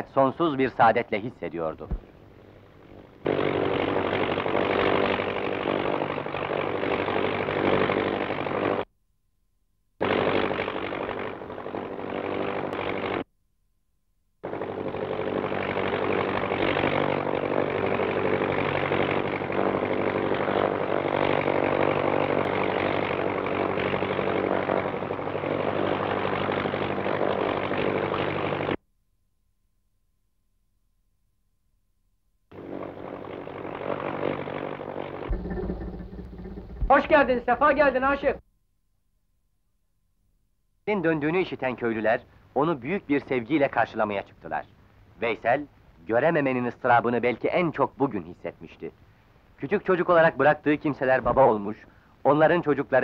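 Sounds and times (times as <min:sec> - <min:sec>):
tractor engine droning: 0:32.5 - 0:38.4.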